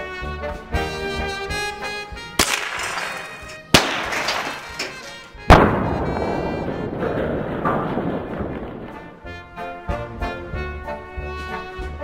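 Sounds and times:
brass music: 0.0 - 7.5, 8.1 - 12.0
gunshots with echo: 2.4 - 9.4.

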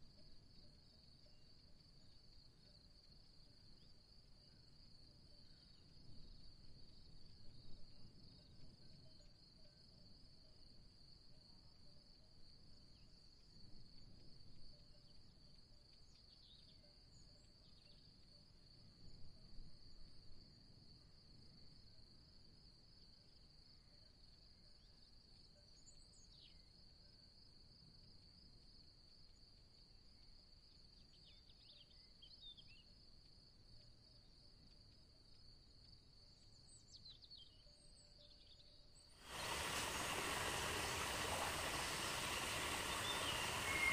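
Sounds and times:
short high chirps: 40.5 - 43.9.

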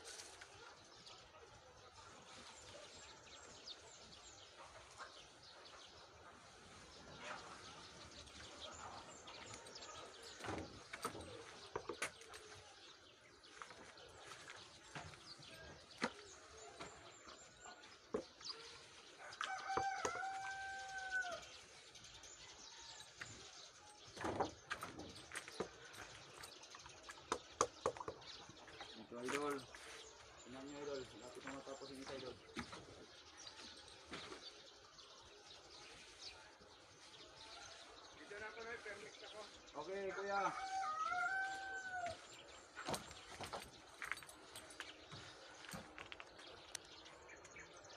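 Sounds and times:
rooster crowing: 19.2 - 21.5, 40.5 - 42.2.

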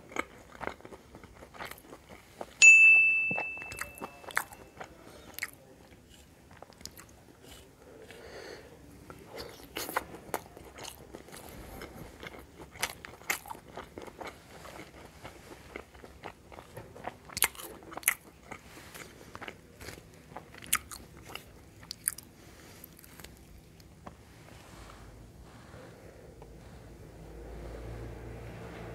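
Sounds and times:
close chewing with wet mouth clicks: 0.0 - 2.6, 3.7 - 24.2.

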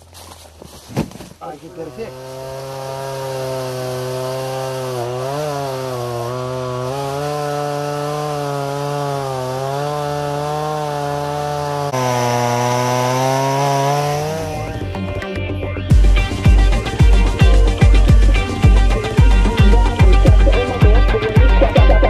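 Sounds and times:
chainsaw cutting wood: 1.1 - 15.0, 15.9 - 22.0.

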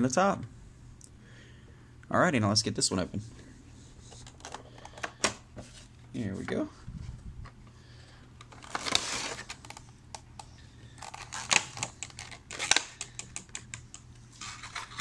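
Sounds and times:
cardboard and plastic rustling: 8.2 - 10.0, 11.0 - 12.9, 14.4 - 15.0
plastic crackles and snaps: 8.4 - 14.0.

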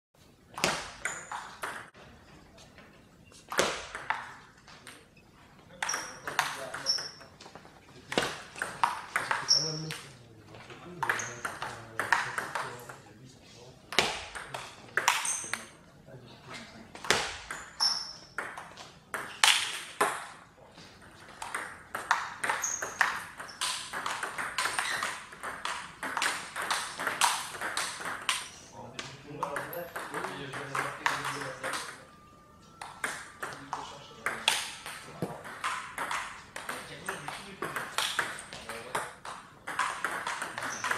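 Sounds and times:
table tennis ball knocking: 0.5 - 2.0, 3.5 - 5.1, 5.8 - 10.0, 11.0 - 12.9, 13.9 - 15.7, 17.0 - 20.4, 21.0 - 40.9
table tennis ball clicking: 21.3 - 28.6, 32.6 - 40.9.

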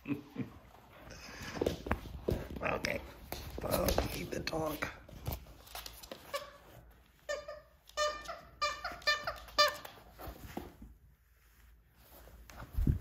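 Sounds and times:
toy squeaker squeaking: 7.3 - 10.0.

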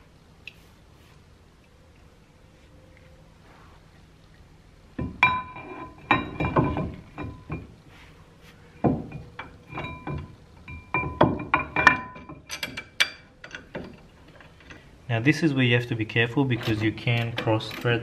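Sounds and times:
knocks with metal ringing: 5.0 - 7.7, 8.8 - 13.3
metal clanks and clinks: 5.0 - 7.8, 8.8 - 14.9, 16.5 - 18.0.

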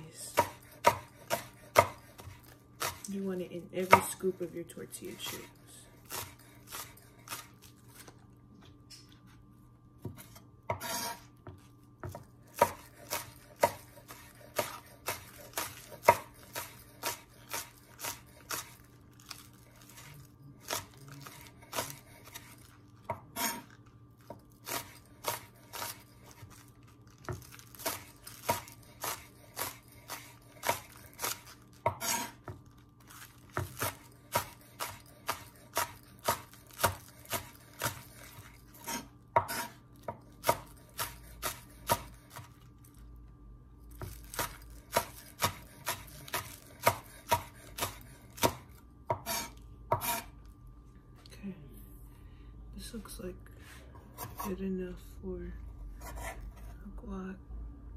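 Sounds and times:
knife chopping on wooden board: 0.3 - 3.1, 10.0 - 18.7, 20.7 - 23.7, 27.2 - 32.6, 33.5 - 42.5, 43.9 - 50.3.

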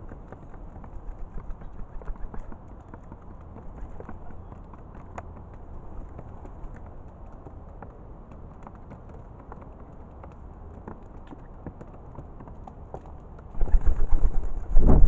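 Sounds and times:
pigeons pecking on plastic dish: 0.0 - 15.0.

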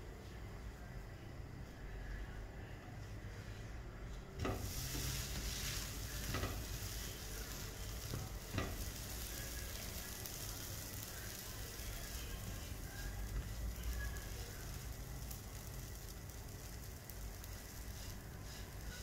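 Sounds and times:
pancake sizzling on a pan: 4.4 - 19.0
spatula tapping a pan: 6.2 - 6.8, 7.5 - 9.0.

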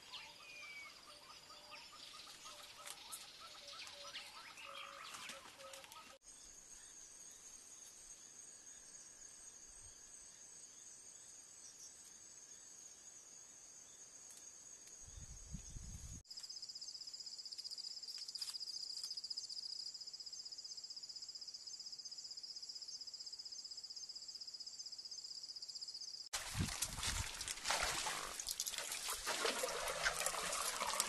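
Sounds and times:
night insects trilling: 16.4 - 31.0.

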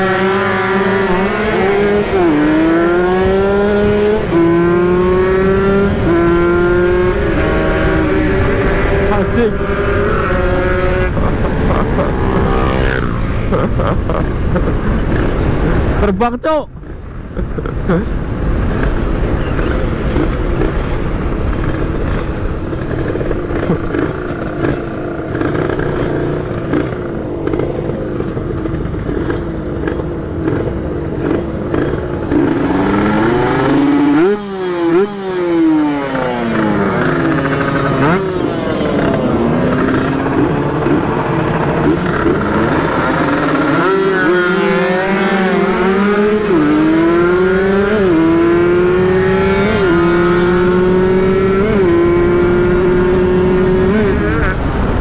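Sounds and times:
motorcycle accelerating through gears: 0.0 - 16.0, 18.6 - 55.0
motorcycle engines revving: 0.0 - 16.1, 16.7 - 55.0.

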